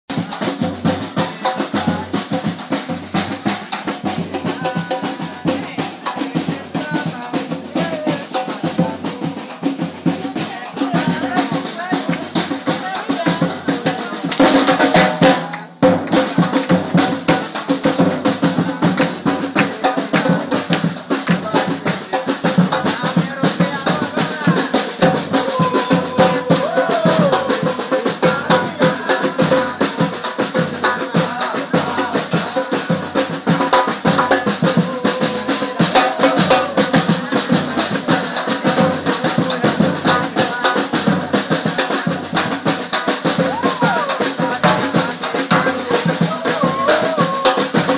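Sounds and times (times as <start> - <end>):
samba drums playing: 0.1 - 47.9.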